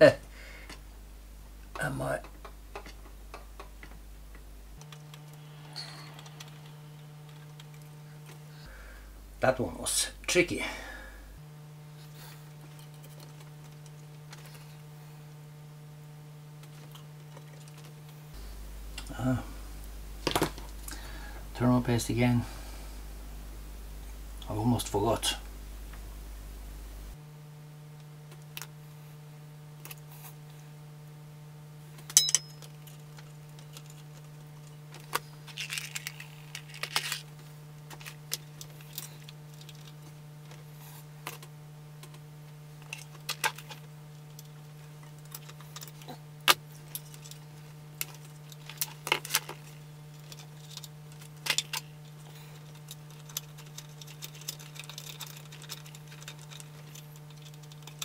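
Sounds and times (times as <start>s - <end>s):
steady low hum: 0.0s - 58.0s
small metal parts clicking: 32.0s - 37.2s, 48.0s - 58.0s.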